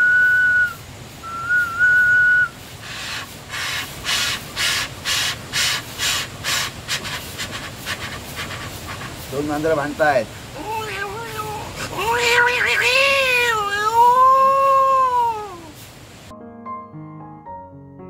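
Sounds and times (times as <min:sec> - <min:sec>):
man imitating train whistle: 0:00.0 - 0:02.6
breathy chuffing puffs: 0:02.8 - 0:09.3.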